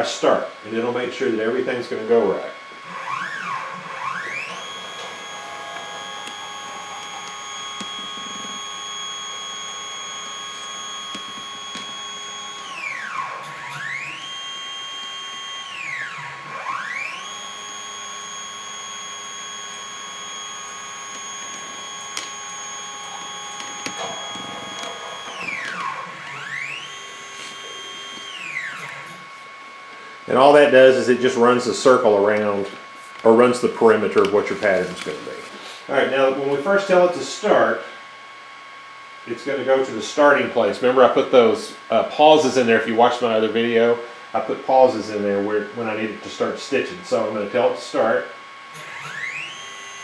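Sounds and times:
stepper motors whining: 2.1 - 37.6, 48.7 - 50.0.

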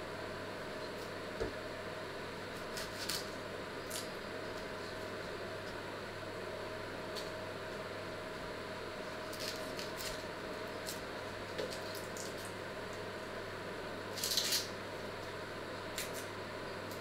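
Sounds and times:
onion skin crackling and rustling: 2.5 - 5.4, 9.0 - 12.6, 14.1 - 14.7.

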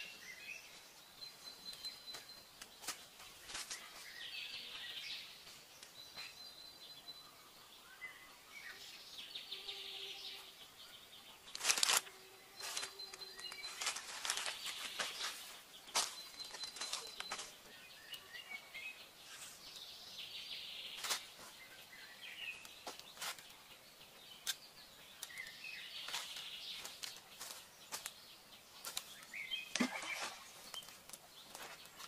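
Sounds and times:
bird chirps: 0.0 - 32.0.

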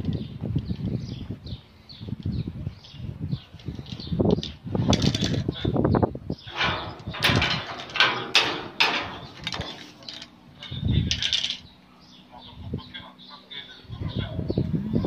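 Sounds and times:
chain latch rattling: 3.6 - 5.6, 6.5 - 11.7
metal door clanking: 6.5 - 11.6.

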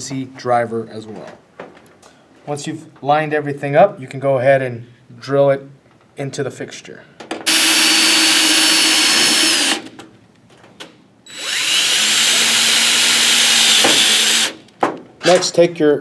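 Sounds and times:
power drill motor whine: 7.5 - 9.9, 11.3 - 14.6.

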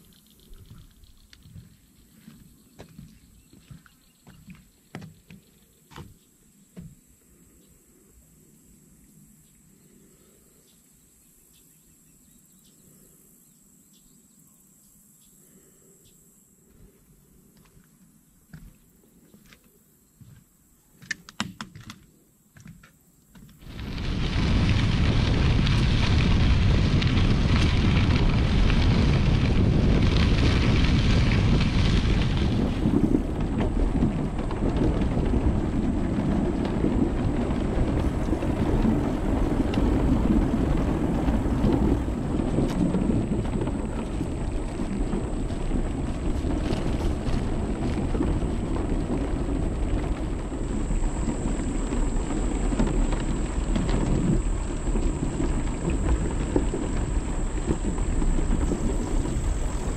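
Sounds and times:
tyres rolling on wooden planks: 22.6 - 59.9
bicycle tyres crunching on gravel: 23.4 - 59.9.

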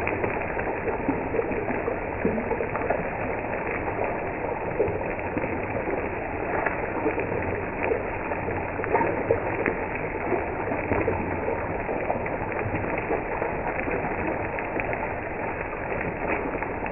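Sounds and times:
fish frying in oil: 0.0 - 16.9.

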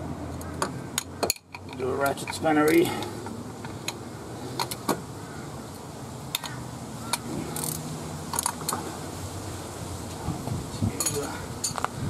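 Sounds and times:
ratcheting spanner clicking: 6.3 - 8.8.

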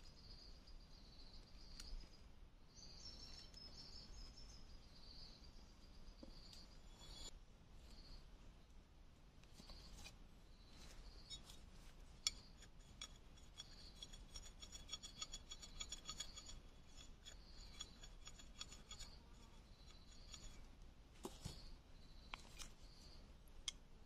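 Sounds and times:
knife scraping bamboo stick: 11.0 - 20.6.

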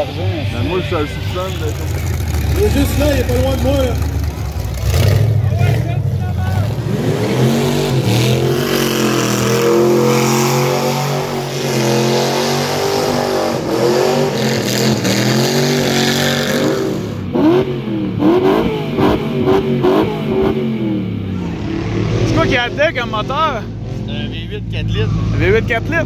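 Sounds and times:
engine revving hard: 0.7 - 24.2.

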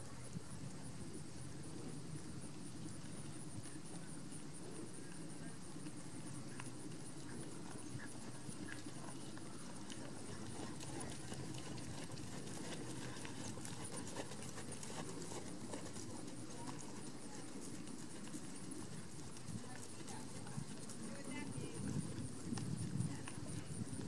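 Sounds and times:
horse hoofbeats on sand: 7.4 - 24.0.

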